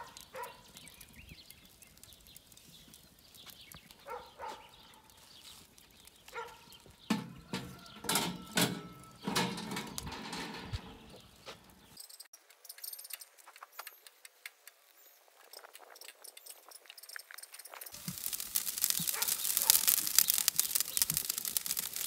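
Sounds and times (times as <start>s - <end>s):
metal grate clattering and rattling: 7.1s - 11.3s.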